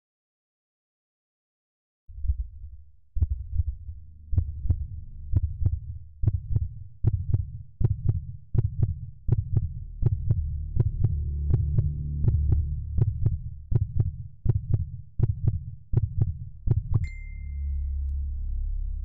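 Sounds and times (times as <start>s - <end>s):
low throbbing drone: 9.6s - 14.2s, 16.6s - 19.0s.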